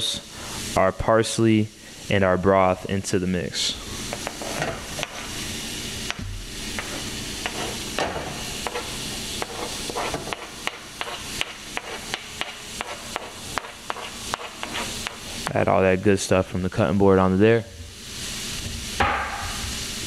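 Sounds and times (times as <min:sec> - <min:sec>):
shrimp sizzling in oil: 0:03.8 - 0:15.5
metal spoon scraping cutting board: 0:06.8 - 0:07.8, 0:08.6 - 0:12.1, 0:13.9 - 0:15.2.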